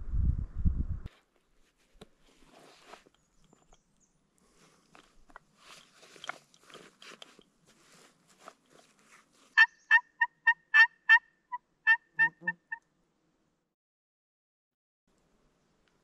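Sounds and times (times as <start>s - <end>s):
faint rustling: 1.1s - 9.6s
turkey call yelps: 9.6s - 11.2s, 11.8s - 12.8s.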